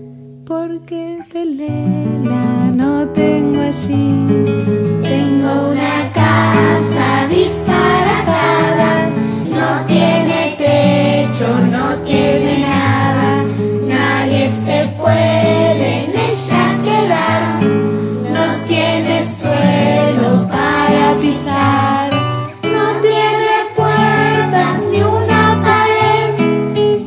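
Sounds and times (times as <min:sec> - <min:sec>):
children's song with singing: 0:05.0 - 0:27.0.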